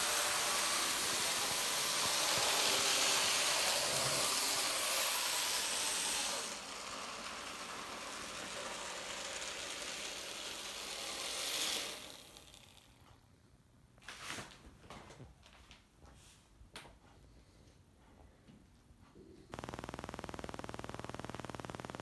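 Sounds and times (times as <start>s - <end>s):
model trains whirring on track: 0.0s - 13.0s.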